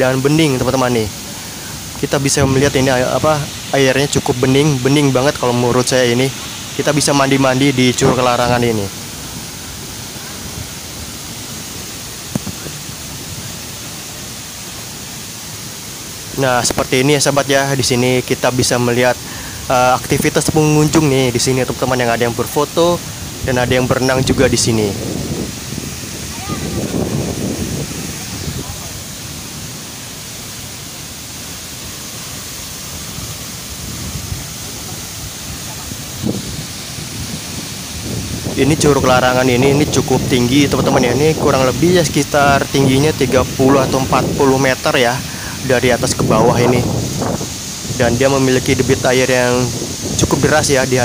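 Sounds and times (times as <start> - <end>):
waterfall rushing: 0.0 - 51.0.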